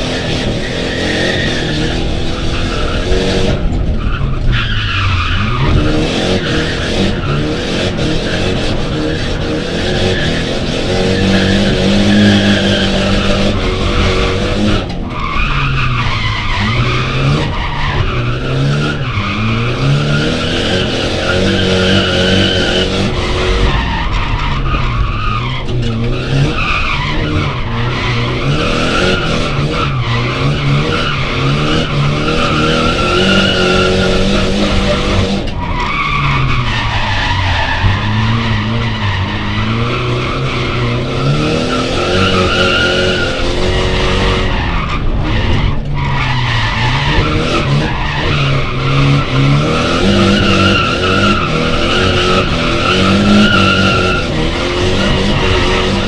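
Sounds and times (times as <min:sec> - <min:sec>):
car engine revving: 0:00.0 - 0:56.0.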